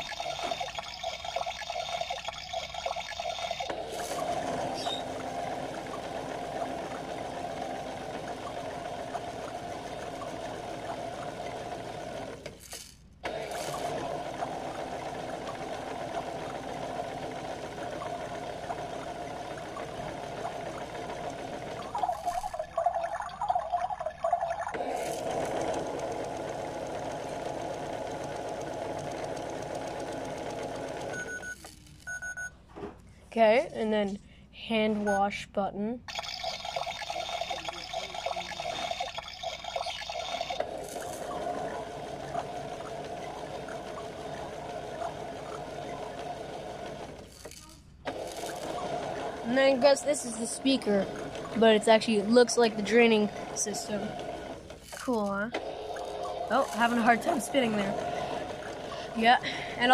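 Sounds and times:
toy washing machine motor humming: 0.0s - 32.5s, 36.1s - 59.9s.

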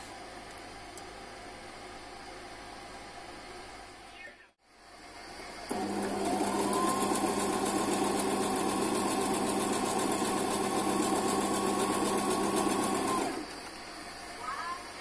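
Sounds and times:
sewing machine running: 5.7s - 13.7s.

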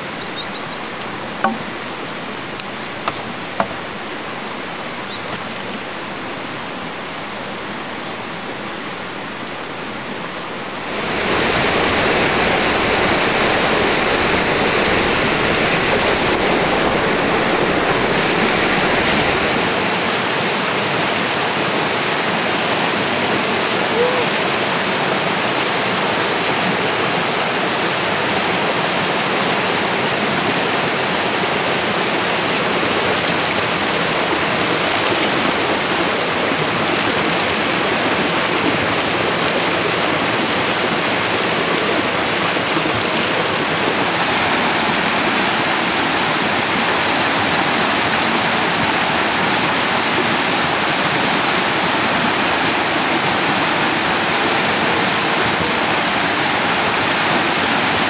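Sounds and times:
stream water rushing: 0.0s - 58.0s.

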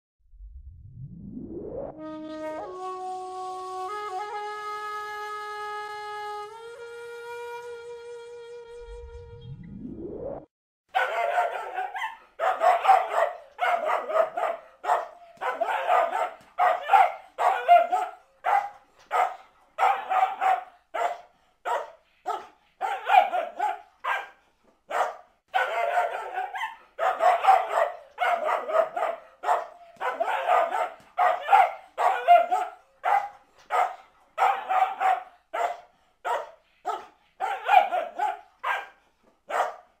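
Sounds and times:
dog barking angrily: 10.9s - 40.0s.

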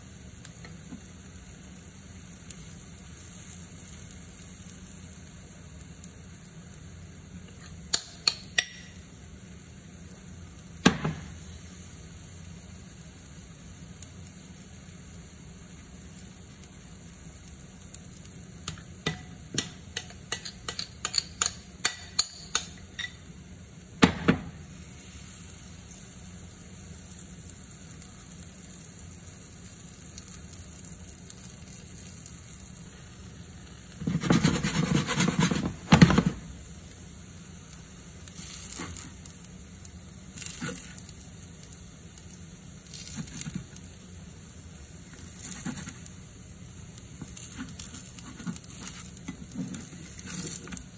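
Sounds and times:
faint sizzle: 0.0s - 50.9s
metal utensil tapping cookware: 18.7s - 23.2s
scraping and stirring: 18.7s - 23.2s, 33.9s - 36.4s, 45.3s - 46.1s, 47.2s - 50.9s.

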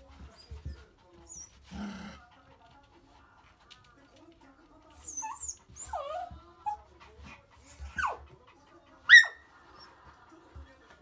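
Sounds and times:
small dog whimpering: 5.0s - 6.8s
dog yelp: 9.1s - 9.4s.

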